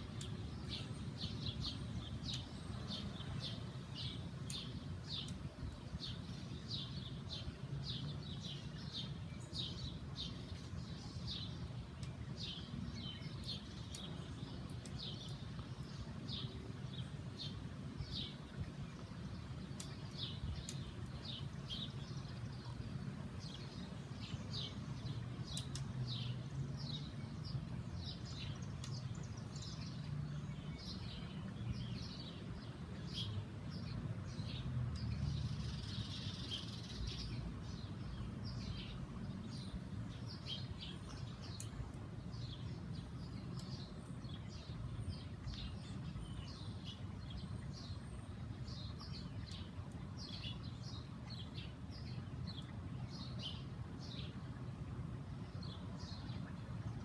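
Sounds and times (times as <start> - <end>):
small songbirds chirping: 0.0 - 57.0.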